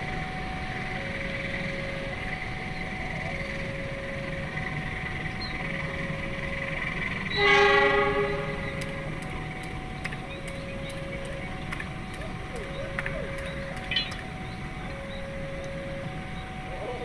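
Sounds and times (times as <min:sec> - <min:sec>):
two-note warning tone: 0:00.0 - 0:17.0
locomotive horn blast: 0:07.2 - 0:09.1.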